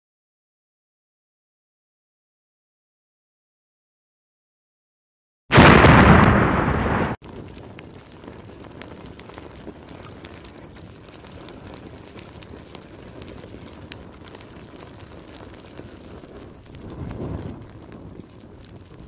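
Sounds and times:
flames crackling: 0:05.5 - 0:19.0.

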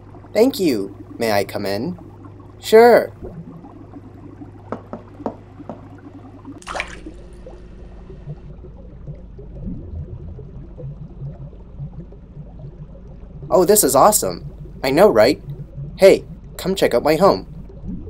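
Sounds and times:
low hum: 0:00.0 - 0:18.0
underwater bubbling and gurgling: 0:00.0 - 0:18.0
water dripping: 0:00.0 - 0:18.0
rushing water splash: 0:06.6 - 0:07.5.

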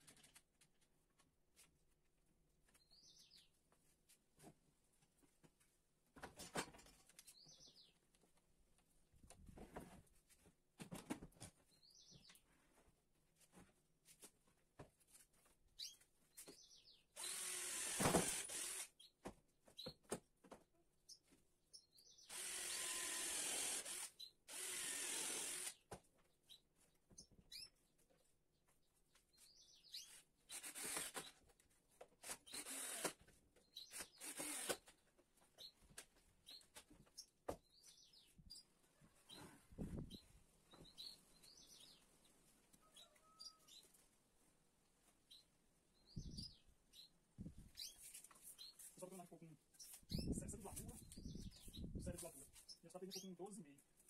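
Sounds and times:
cordless drill driving screws: 0:17.2 - 0:18.9, 0:22.3 - 0:25.8, 0:30.5 - 0:31.4, 0:32.2 - 0:33.2, 0:33.9 - 0:34.9.

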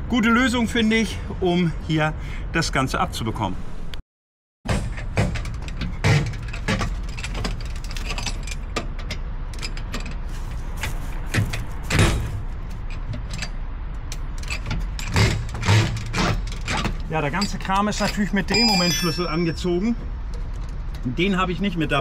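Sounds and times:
metallic clinks and scrapes of bolts: 0:04.9 - 0:21.0.

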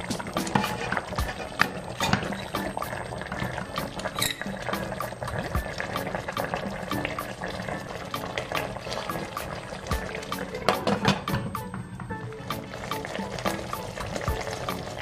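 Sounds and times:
background music: 0:00.0 - 0:15.0
sauce bubbling and popping: 0:00.0 - 0:15.0.

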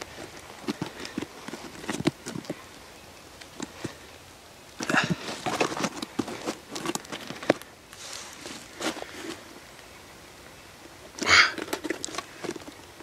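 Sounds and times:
bark scraping and crackling: 0:00.0 - 0:02.8, 0:04.8 - 0:09.5, 0:11.2 - 0:13.0.

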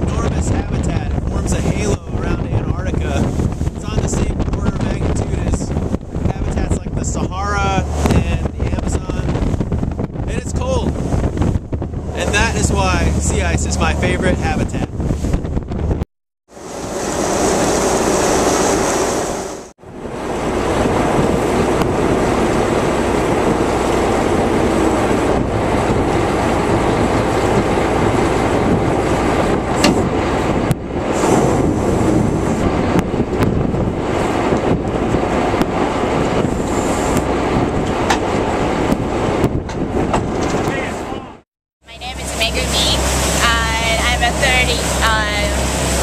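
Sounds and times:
winch and engine rumbling: 0:00.0 - 0:16.0, 0:16.6 - 0:46.0
sharp knocks: 0:29.8 - 0:30.1.

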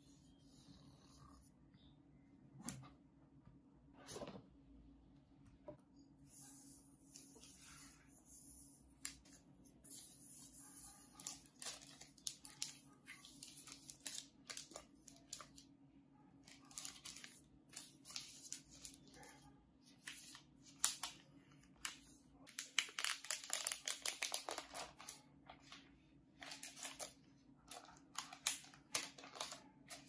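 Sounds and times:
cardboard and paper rustling: 0:16.5 - 0:19.3, 0:21.8 - 0:30.0.

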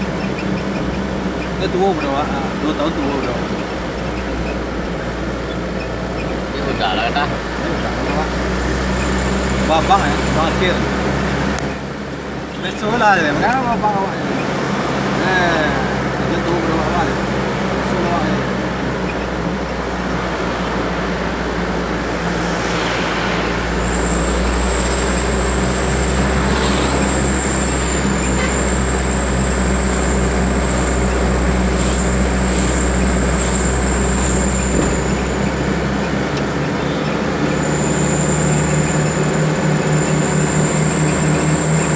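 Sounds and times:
vehicle engine and road noise: 0:00.0 - 0:41.9
high-pitched whine: 0:19.0 - 0:35.8, 0:36.8 - 0:41.9.

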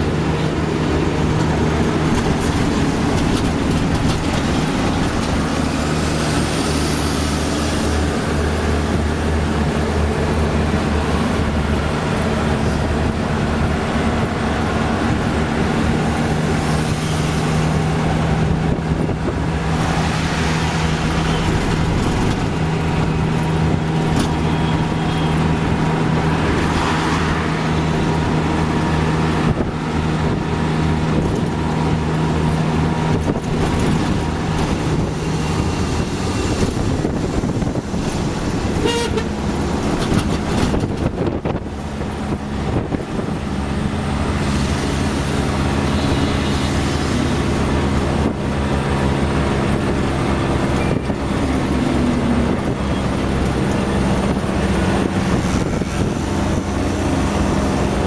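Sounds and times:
road and traffic noise: 0:00.0 - 0:58.0
horn toot: 0:38.8 - 0:39.4.

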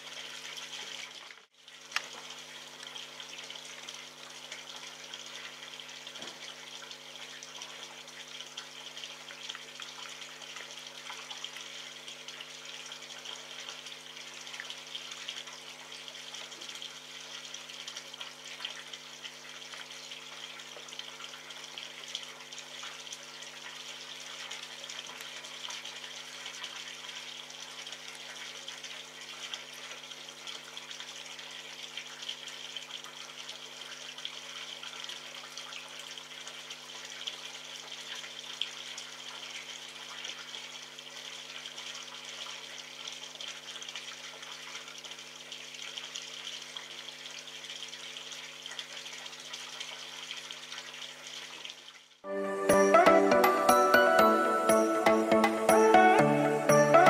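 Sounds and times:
music: 0:52.3 - 0:57.0.

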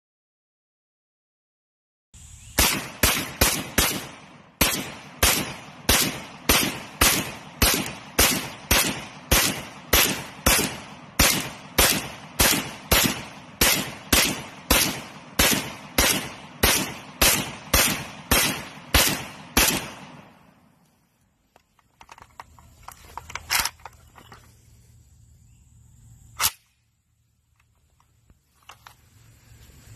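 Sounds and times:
rifle single shots: 0:02.5 - 0:20.8, 0:26.4 - 0:26.9
rifle clicks: 0:21.5 - 0:24.4, 0:26.4 - 0:26.8.

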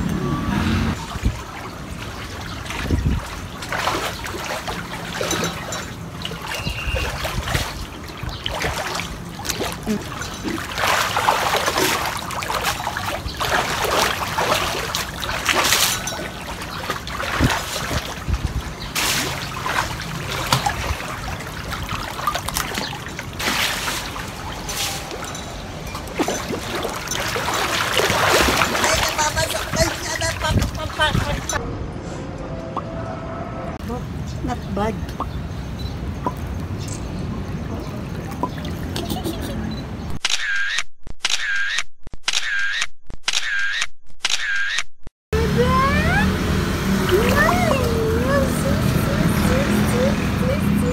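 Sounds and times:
pool water splashing: 0:00.9 - 0:31.6, 0:36.0 - 0:39.8, 0:45.4 - 0:50.9.

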